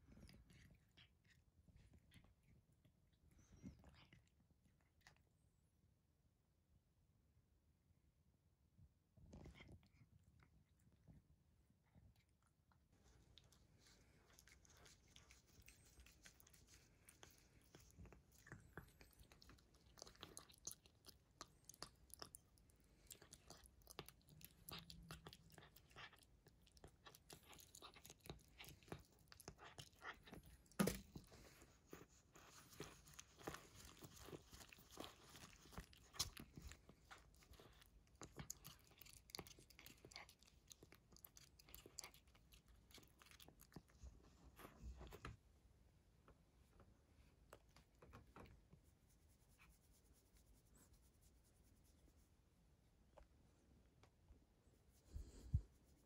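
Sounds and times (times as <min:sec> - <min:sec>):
cat chewing and licking: 0:00.0 - 0:06.4, 0:09.0 - 0:45.5.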